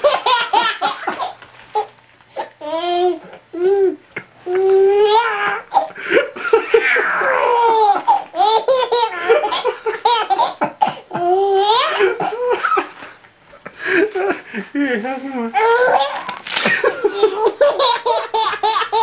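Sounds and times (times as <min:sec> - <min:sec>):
baby laughing and squealing: 0:06.5 - 0:10.6, 0:15.6 - 0:16.4.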